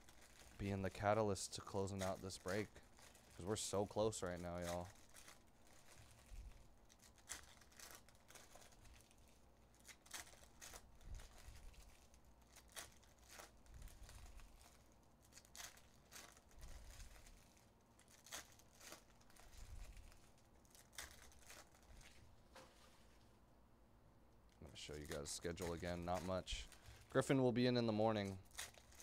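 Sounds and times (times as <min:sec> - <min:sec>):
foil packs crinkling and ripping: 0:00.0 - 0:23.2, 0:24.5 - 0:29.0.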